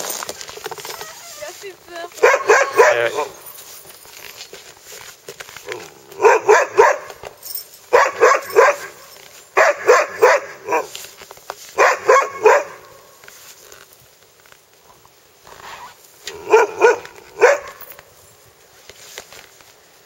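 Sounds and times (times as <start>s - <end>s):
sled dogs barking: 1.2s - 3.5s, 5.6s - 11.1s, 11.7s - 13.2s, 16.3s - 18.0s.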